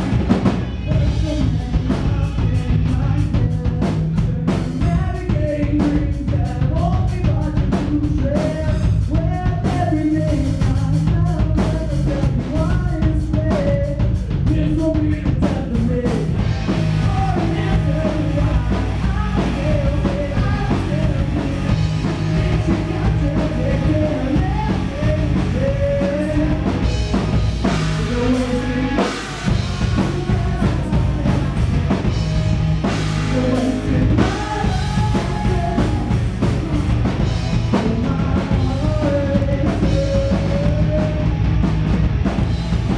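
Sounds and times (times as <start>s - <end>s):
electric guitar: 0.0s - 14.6s, 15.8s - 42.9s
person singing: 0.0s - 26.9s, 27.6s - 41.4s
bass guitar: 0.0s - 42.9s
drum kit: 0.0s - 42.9s.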